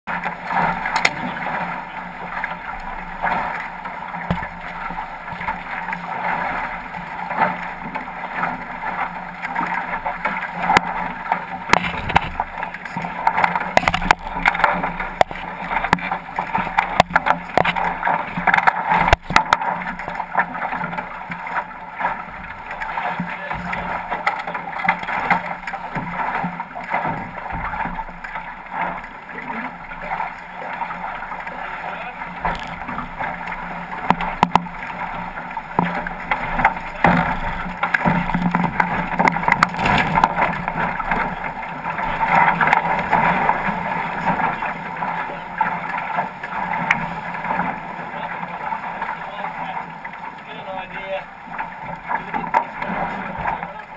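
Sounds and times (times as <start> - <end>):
water rushing along boat hull: 0.1 - 53.9
boat gear knocks and clatters: 0.2 - 29.0, 32.4 - 44.6.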